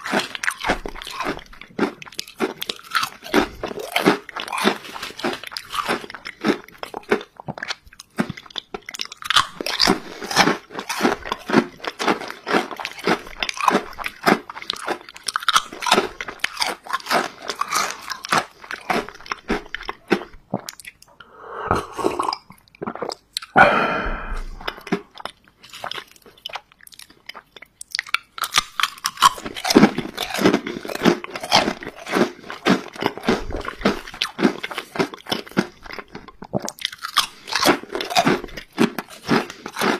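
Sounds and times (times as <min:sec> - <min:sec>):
crunching potato chips: 0:00.0 - 0:21.1, 0:24.7 - 0:39.9
gulping a drink: 0:19.6 - 0:25.3.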